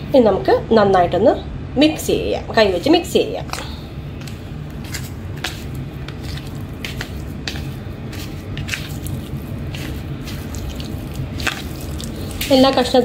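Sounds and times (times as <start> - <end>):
steady low hum: 0.0 - 13.0
prawns squelching in a plastic bowl: 4.2 - 13.0.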